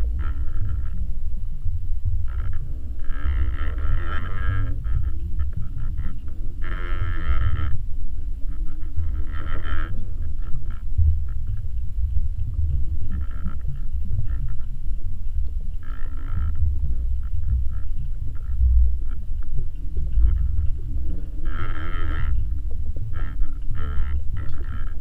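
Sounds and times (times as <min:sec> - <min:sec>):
underwater rumble of moving water: 0:00.0 - 0:25.0.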